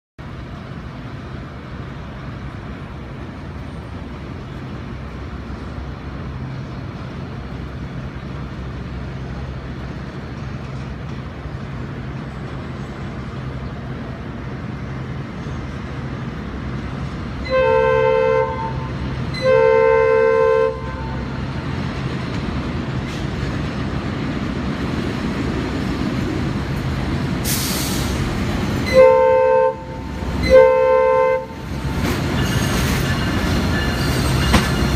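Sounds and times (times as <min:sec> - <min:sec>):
locomotive engine drone: 0:00.2 - 0:34.9
multi-tone locomotive horn: 0:17.4 - 0:21.4, 0:28.8 - 0:34.9
short air hiss: 0:27.4 - 0:28.3.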